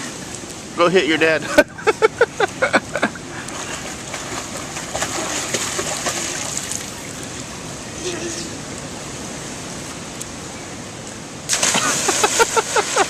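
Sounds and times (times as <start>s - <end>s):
pool water splashing and sloshing: 0.0s - 10.2s, 11.4s - 13.0s
small splashes: 3.5s - 7.2s, 11.5s - 13.0s.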